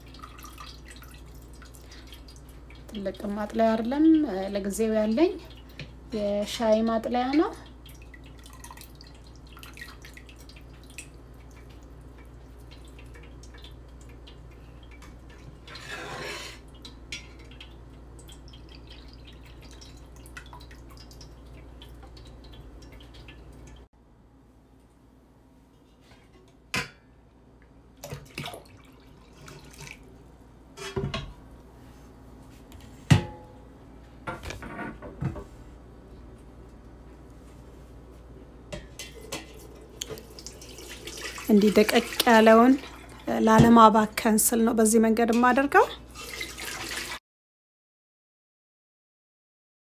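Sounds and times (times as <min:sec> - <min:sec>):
liquid dripping and trickling: 0:00.0 - 0:04.5, 0:06.6 - 0:15.9, 0:16.6 - 0:23.9, 0:28.0 - 0:30.2, 0:39.0 - 0:43.4, 0:46.0 - 0:47.2.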